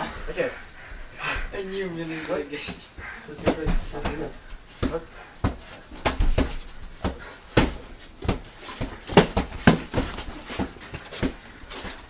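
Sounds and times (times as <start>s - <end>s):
boxing gloves hitting pads: 2.6s - 12.0s.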